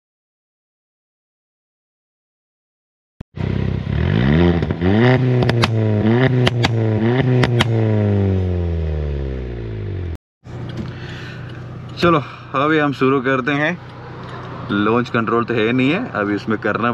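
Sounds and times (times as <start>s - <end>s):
car engine revving: 3.4s - 12.2s
exhaust pops: 4.1s - 8.2s.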